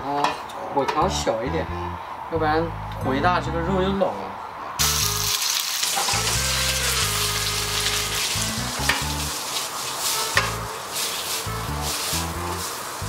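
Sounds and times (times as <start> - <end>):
meat sizzling in a wok: 4.8 - 13.0
spatula clinking against wok: 10.1 - 11.4.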